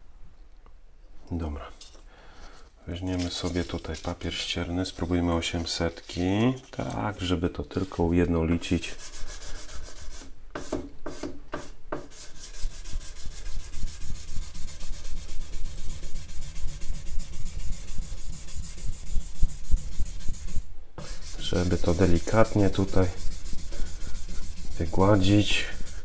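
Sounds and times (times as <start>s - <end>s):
sandpaper scraping on metal: 3.0s - 8.1s, 8.8s - 10.3s, 12.1s - 26.0s.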